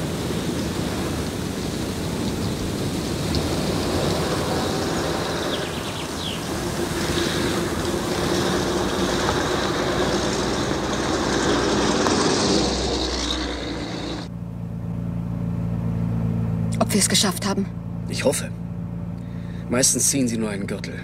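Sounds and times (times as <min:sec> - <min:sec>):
steady rushing noise: 0:00.0 - 0:14.3
car engine running: 0:00.0 - 0:21.0.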